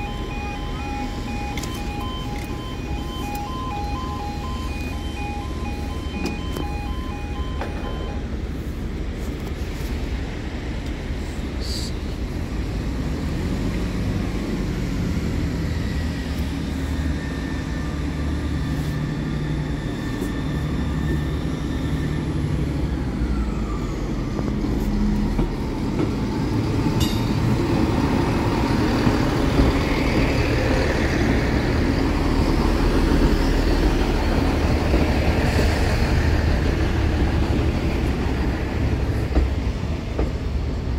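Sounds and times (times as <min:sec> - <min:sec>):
level crossing alarm tones: 0:00.0 - 0:08.3
diesel train passing: 0:00.0 - 0:40.9.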